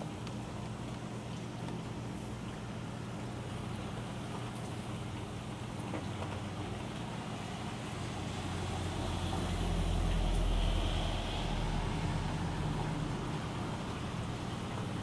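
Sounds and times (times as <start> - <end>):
steady rain: 3.5 - 15.0.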